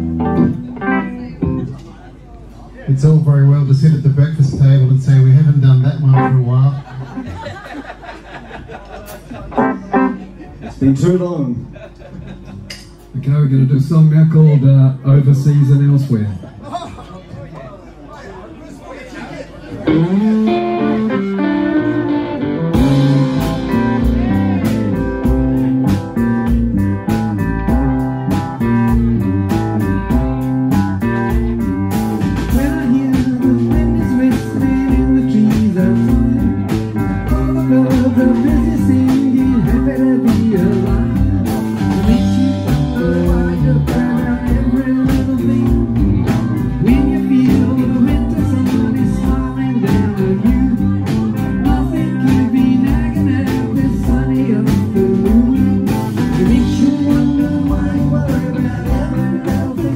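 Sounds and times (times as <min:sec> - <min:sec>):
rock band playing: 0:00.0 - 0:01.9, 0:03.7 - 0:08.1, 0:09.1 - 0:14.3, 0:19.8 - 0:59.9
person singing: 0:19.9 - 0:26.3, 0:32.4 - 0:59.9.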